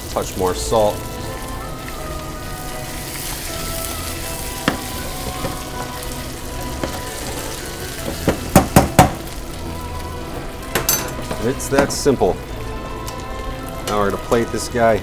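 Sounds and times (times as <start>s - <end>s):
butter sizzling in a pan: 0.0s - 15.0s
sharp knocks: 8.1s - 9.2s.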